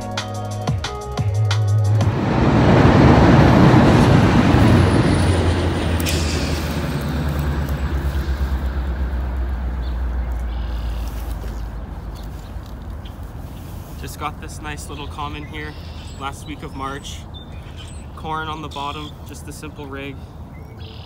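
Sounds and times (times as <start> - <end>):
low traffic rumble: 0.8 - 21.0
heavy vehicle passing: 1.7 - 15.7.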